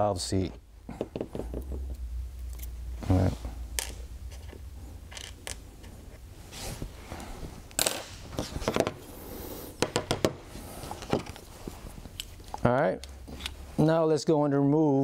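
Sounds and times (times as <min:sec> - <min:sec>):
tools knocking on workbench: 0:01.0 - 0:01.9, 0:09.8 - 0:10.4
metal parts clicking and clinking: 0:03.8 - 0:05.9.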